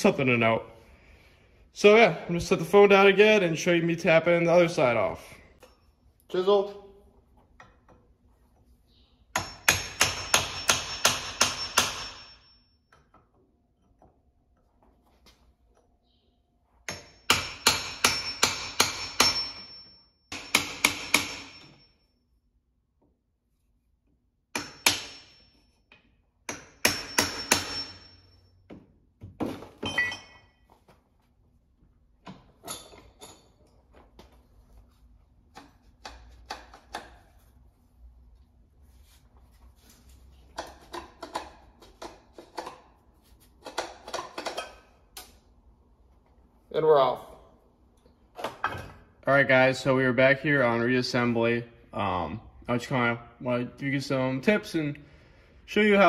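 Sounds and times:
hammer striking chisel on metal: 0:09.3 - 0:13.1, 0:16.8 - 0:22.0, 0:24.5 - 0:28.3.

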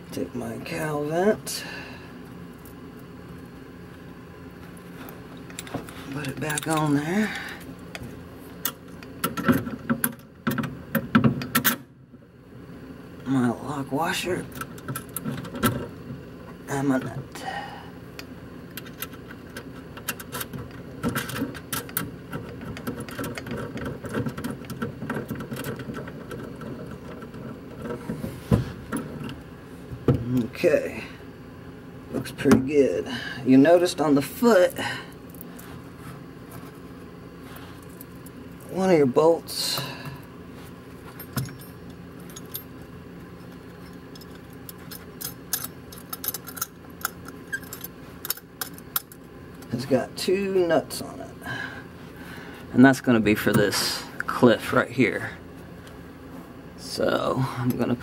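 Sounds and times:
metallic clicks and rattles: 0:18.7 - 0:28.0, 0:41.0 - 0:49.7
metal bolts and nuts clinking: 0:41.0 - 0:49.7.

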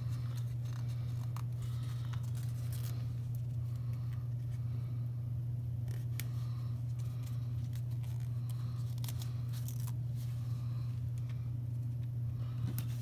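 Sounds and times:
paper rustling: 0:00.0 - 0:03.6
low hum: 0:00.0 - 0:13.0.

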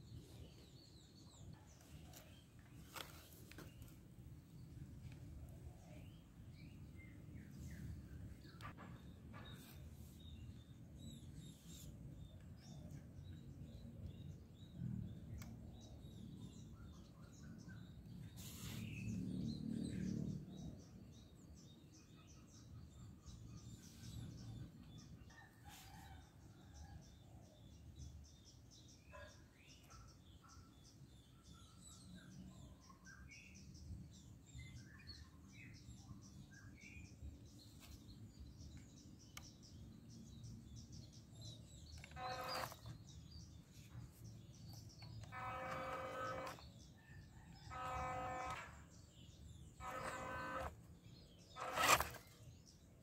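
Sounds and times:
birds chirping: 0:27.6 - 0:53.0.

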